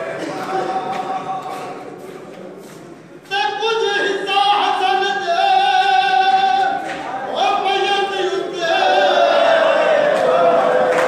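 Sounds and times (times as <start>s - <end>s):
men chanting a lament: 3.3s - 11.0s.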